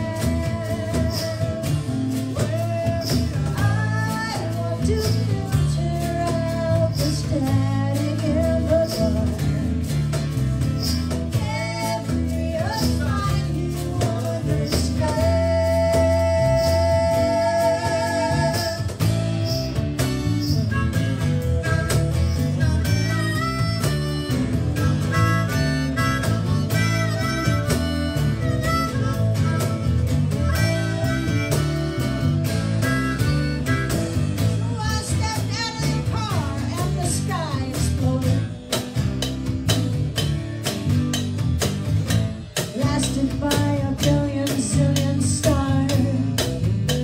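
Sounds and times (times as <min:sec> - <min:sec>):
woman singing: 0:00.0 - 0:09.9, 0:11.3 - 0:19.0, 0:34.5 - 0:38.9, 0:42.6 - 0:47.0
acoustic guitar: 0:00.0 - 0:47.0
cajon beat: 0:00.0 - 0:47.0
electric bass: 0:00.0 - 0:47.0.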